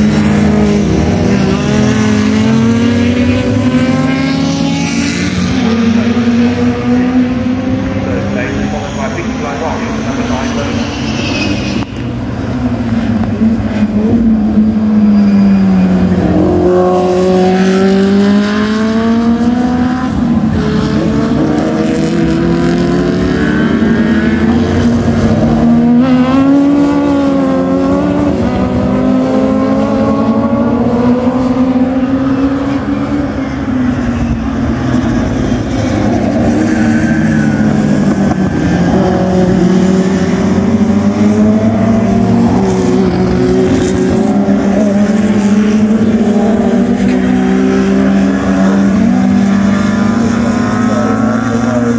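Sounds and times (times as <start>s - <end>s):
race car engines revving: 0.0s - 51.9s.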